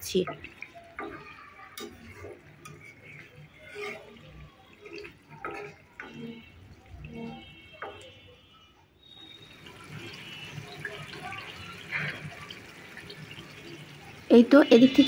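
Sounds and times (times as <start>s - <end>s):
sauce squelching and bubbling: 0.2s - 8.2s, 9.0s - 14.3s
spatula scraping a pan: 0.2s - 8.2s.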